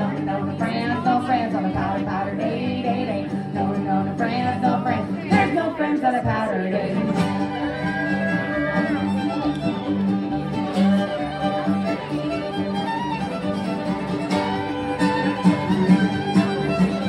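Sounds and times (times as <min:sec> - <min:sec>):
women singing: 0:00.0 - 0:08.8
string band playing: 0:00.0 - 0:17.0
fiddle sliding notes: 0:07.0 - 0:17.0.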